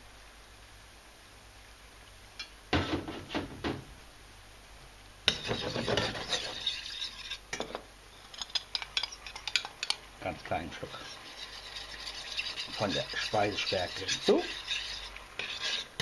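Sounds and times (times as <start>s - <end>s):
metal spoon scraping a frying pan: 5.3s - 10.0s, 10.8s - 16.0s.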